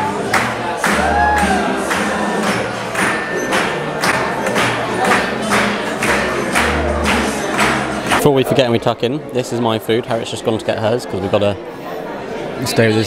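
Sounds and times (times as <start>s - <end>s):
music with steady beat and bass: 0.0s - 8.2s.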